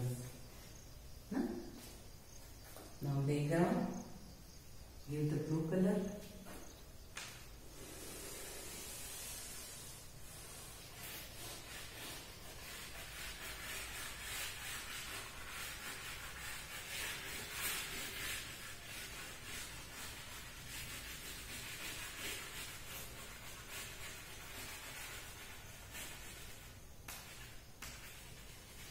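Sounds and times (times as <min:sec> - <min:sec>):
chalk scratching on a chalkboard: 0:07.7 - 0:28.9.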